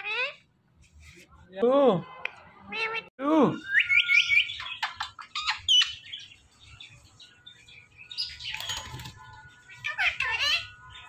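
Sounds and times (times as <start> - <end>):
parakeet whistled chirps: 3.6 - 6.0
parakeet sharp calls: 8.2 - 11.0.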